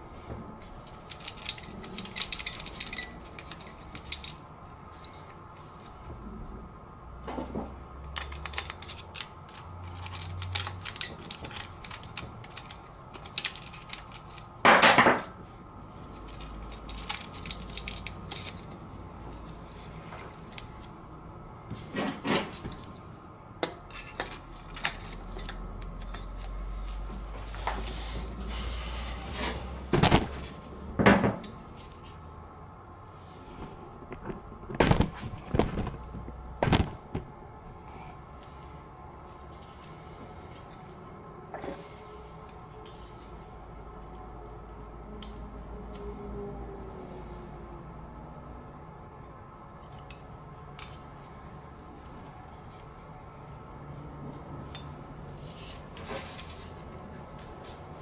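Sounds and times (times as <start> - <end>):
metal engine parts clinking: 0.6 - 5.2, 7.6 - 15.3, 16.1 - 19.9, 23.6 - 26.7, 54.6 - 56.8.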